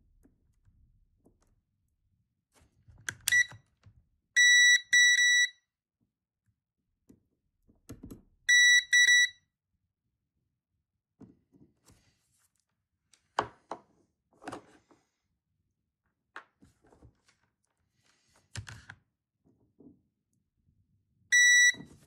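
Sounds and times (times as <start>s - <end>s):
multimeter short high-pitched beeps: 3.3s - 3.5s, 4.4s - 5.6s, 8.5s - 9.4s, 21.4s - 21.8s.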